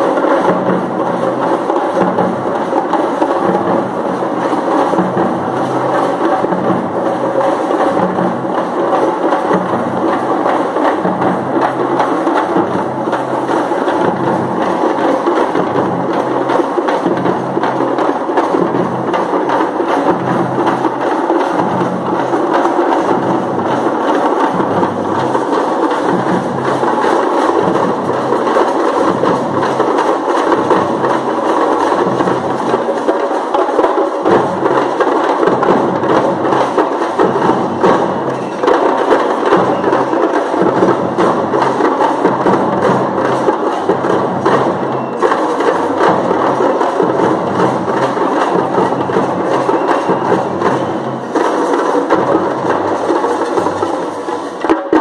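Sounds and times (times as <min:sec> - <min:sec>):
frame drums beaten fast: 0:00.0 - 0:55.0.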